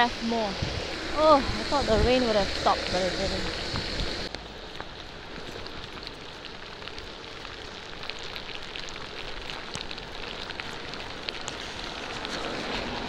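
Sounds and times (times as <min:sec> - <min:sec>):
raindrops ticking: 0:00.0 - 0:13.0
steady rain falling: 0:00.0 - 0:13.0.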